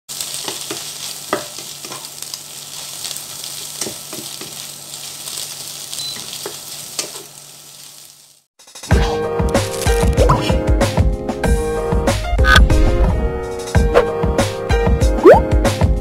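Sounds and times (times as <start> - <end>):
cabbage sizzling in a frying pan: 0.1 - 8.5.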